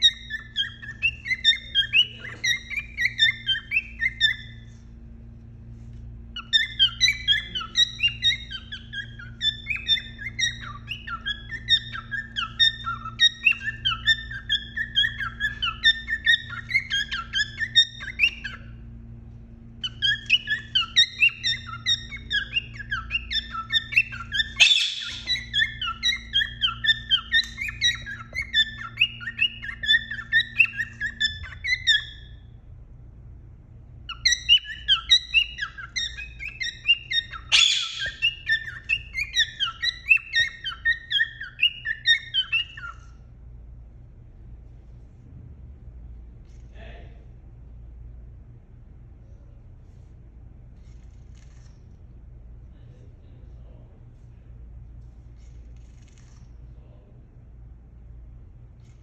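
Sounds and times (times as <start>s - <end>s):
cockatiel chirping and whistling: 0.0s - 4.8s, 6.4s - 18.8s, 19.8s - 32.5s, 34.1s - 43.2s
steady low hum: 0.0s - 59.0s.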